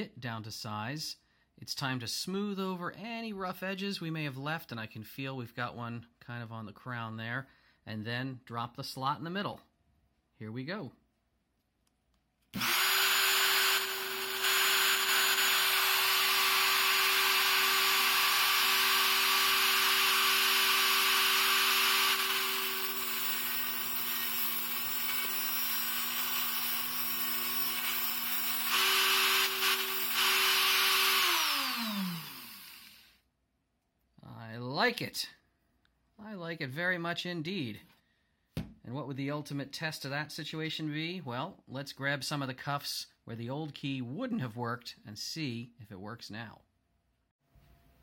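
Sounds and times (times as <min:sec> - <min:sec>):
rotary tool grinding metal: 0:12.6 - 0:33.1
rotary tool spinning down: 0:12.6 - 0:33.1.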